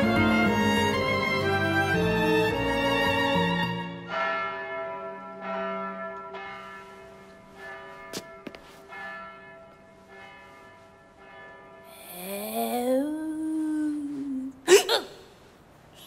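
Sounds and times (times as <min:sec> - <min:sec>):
church bells tolling: 0:03.9 - 0:12.0.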